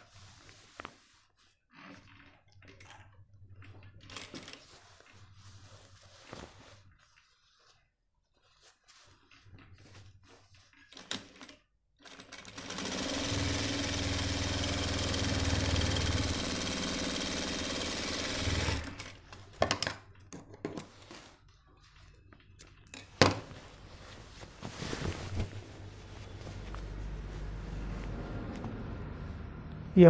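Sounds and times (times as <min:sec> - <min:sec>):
cloth handling: 0:00.0 - 0:02.0, 0:04.5 - 0:11.0, 0:20.8 - 0:28.2
sewing machine running: 0:12.0 - 0:19.2.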